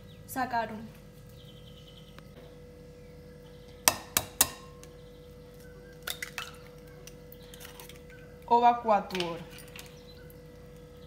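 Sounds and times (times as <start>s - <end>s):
faint steady hum: 0.0s - 11.0s
eggshell cracking: 3.8s - 8.5s.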